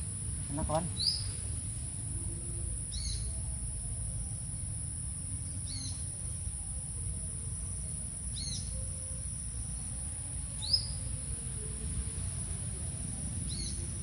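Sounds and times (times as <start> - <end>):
insects droning: 0.0 - 14.0
bird chirping: 0.5 - 1.4.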